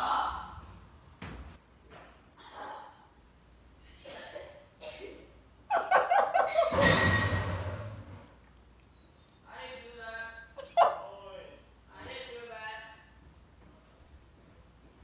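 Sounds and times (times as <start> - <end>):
person laughing: 5.7 - 6.8.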